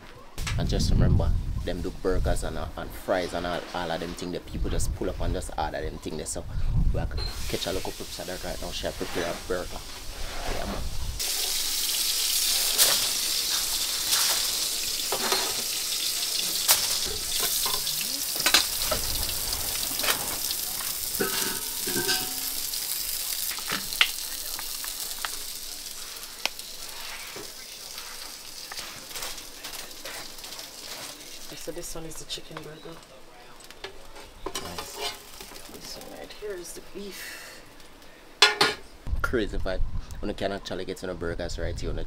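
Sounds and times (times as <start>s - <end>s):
burger patties sizzling in a pan: 7.4s - 33.0s, 33.8s - 36.9s.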